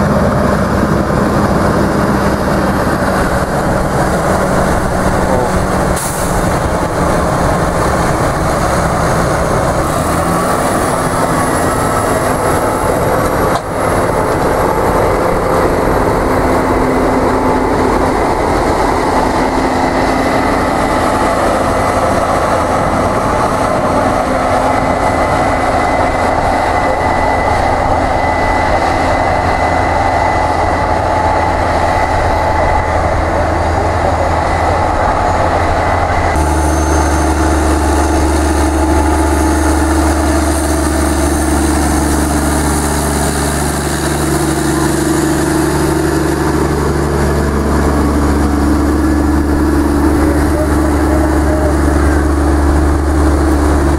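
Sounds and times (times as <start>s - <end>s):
deep engine hum: 0.0s - 53.9s
tractor engine and track noise: 0.0s - 53.9s
thin high whine: 24.6s - 53.9s.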